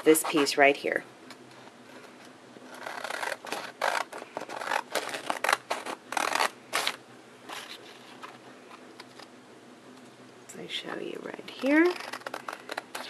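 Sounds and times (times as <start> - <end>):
scissors snipping paper: 11.5 - 13.0.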